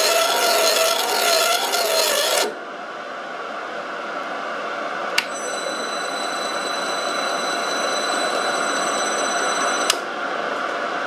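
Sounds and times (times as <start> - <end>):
ringing squeal from cutting: 0.0 - 2.5, 5.3 - 9.9
metal lathe machine noise: 0.0 - 2.6.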